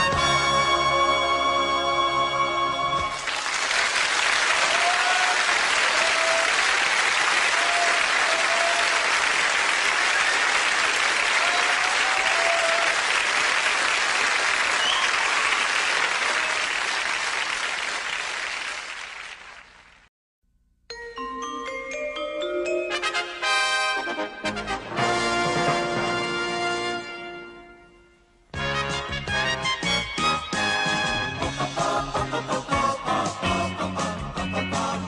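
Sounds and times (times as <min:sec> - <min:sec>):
audience applauding: 0:03.1 - 0:20.1.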